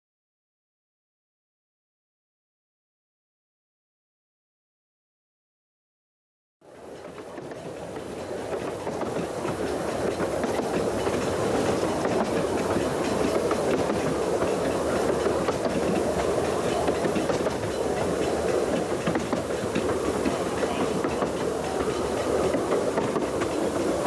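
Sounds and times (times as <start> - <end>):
train wheels rumbling on rails: 6.6 - 24.0
clickety-clack over rails: 6.8 - 24.0.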